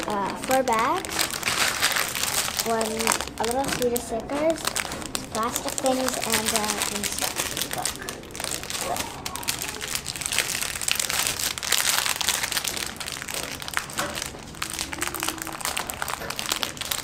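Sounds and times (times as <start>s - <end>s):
plastic packaging crinkling: 0.0s - 17.0s.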